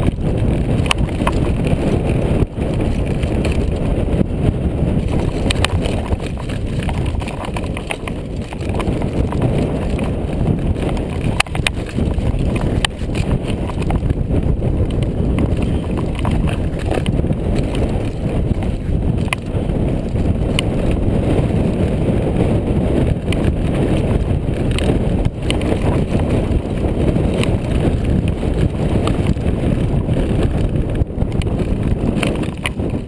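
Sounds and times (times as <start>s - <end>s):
tyres rumbling over stones: 0.0s - 21.1s, 22.8s - 33.0s
bike knocks and rattles: 0.0s - 33.0s.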